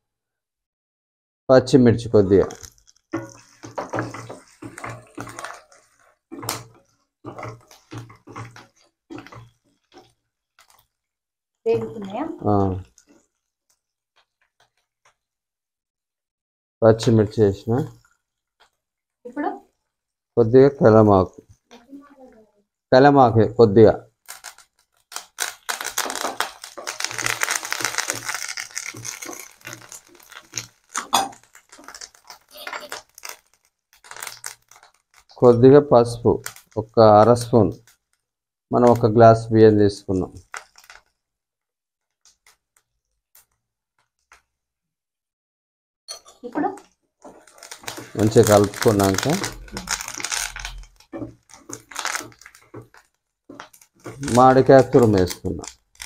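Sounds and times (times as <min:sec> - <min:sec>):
food sizzling in oil: 0:02.0 - 0:11.0, 0:11.7 - 0:13.3, 0:24.0 - 0:38.0, 0:46.1 - 0:56.0
wooden spatula scraping a pan: 0:02.4 - 0:11.0, 0:11.7 - 0:13.3, 0:26.0 - 0:35.4, 0:47.2 - 0:55.3.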